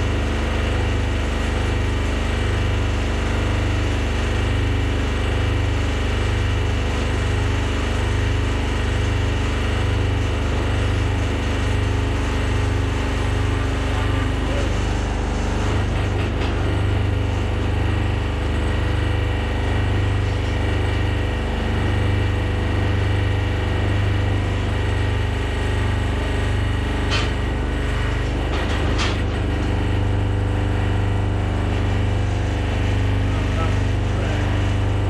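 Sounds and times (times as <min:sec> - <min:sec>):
hydraulic pump humming: 0:00.0 - 0:35.0.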